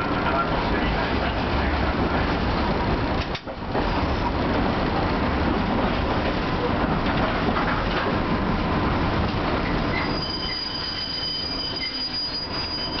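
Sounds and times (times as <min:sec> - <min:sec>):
streetcar rolling rumble: 0:00.0 - 0:13.0
steel wheels squealing: 0:09.7 - 0:13.0.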